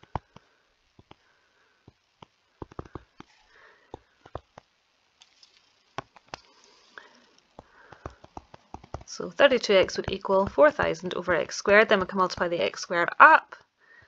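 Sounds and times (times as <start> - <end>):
stylus tapping on tablet screen: 0.0 - 0.4, 1.0 - 1.2, 1.9 - 4.7, 6.0 - 6.5, 7.6 - 10.8.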